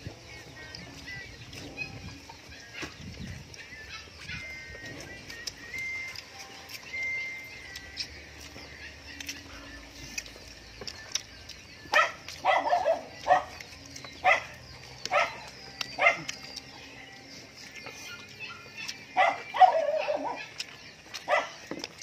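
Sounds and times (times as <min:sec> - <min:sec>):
dog barking: 0:11.9 - 0:16.4, 0:18.0 - 0:21.6.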